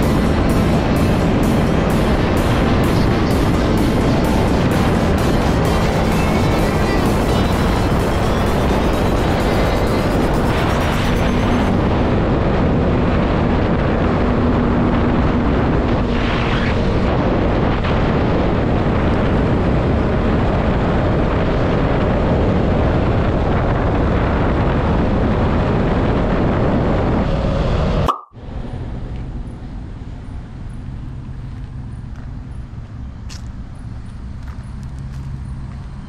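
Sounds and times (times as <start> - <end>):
motorcycle engine running: 0.0 - 15.5
wind rush on microphone: 0.0 - 36.0.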